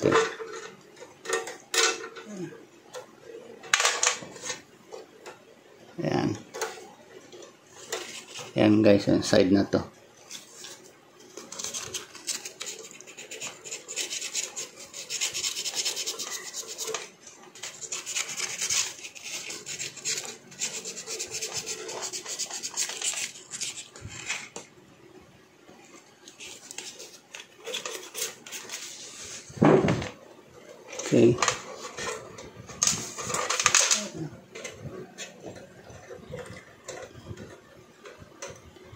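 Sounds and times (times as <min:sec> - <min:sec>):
sandpaper rubbing on metal: 0:11.6 - 0:24.0.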